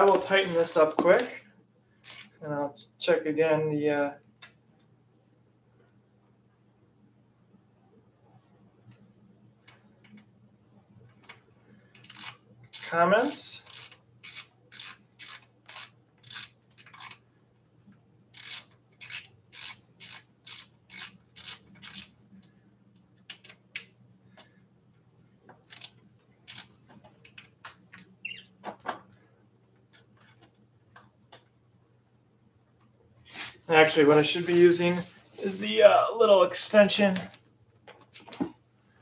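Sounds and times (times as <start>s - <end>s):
hand ratchet clicking: 2.0s - 2.4s, 12.0s - 13.0s, 13.6s - 17.2s, 18.3s - 22.2s, 25.7s - 27.5s.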